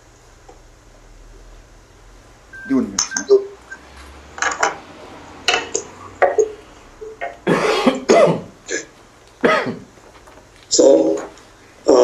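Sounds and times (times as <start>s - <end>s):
person clearing throat: 7.4s - 9.9s
person coughing: 7.4s - 9.9s.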